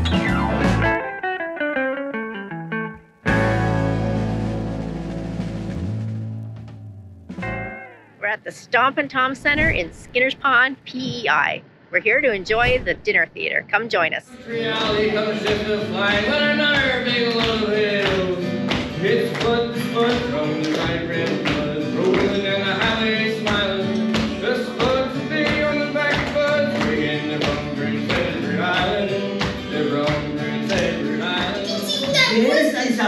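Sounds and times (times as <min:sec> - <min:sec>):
country music with singing: 0:14.3 - 0:33.0.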